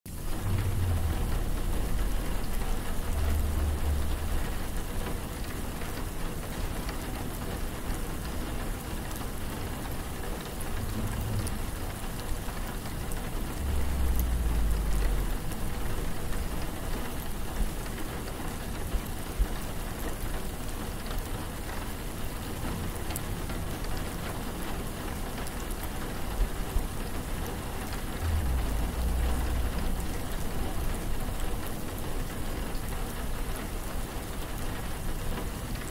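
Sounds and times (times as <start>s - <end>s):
deep low rumble: 0.1s - 6.2s, 10.4s - 17.2s, 27.9s - 32.2s
steady rain hissing: 0.1s - 35.9s.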